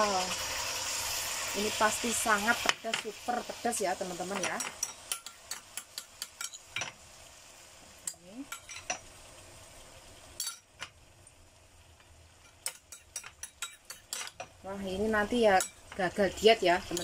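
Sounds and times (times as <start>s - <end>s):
paste sizzling in oil: 0.0s - 17.0s
spoon clinking and scraping pan: 4.3s - 7.0s, 8.0s - 9.1s, 10.4s - 10.9s, 12.4s - 14.6s, 15.5s - 16.0s.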